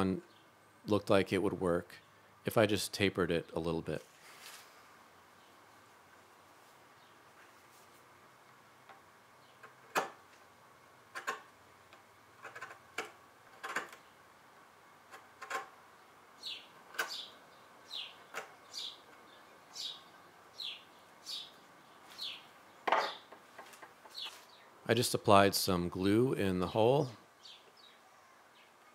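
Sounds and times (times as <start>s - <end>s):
bird chirping: 15.9s - 23.4s, 24.0s - 25.0s, 26.5s - 28.9s.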